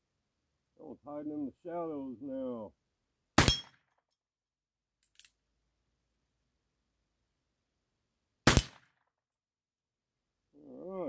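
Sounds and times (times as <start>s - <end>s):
gunshot echo: 8.4s - 9.0s.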